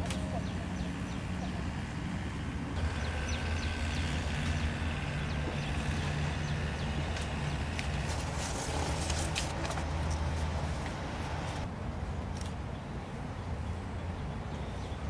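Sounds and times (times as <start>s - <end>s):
small birds chirping: 0.0s - 1.9s, 2.8s - 9.4s
low steady hum: 0.0s - 11.7s.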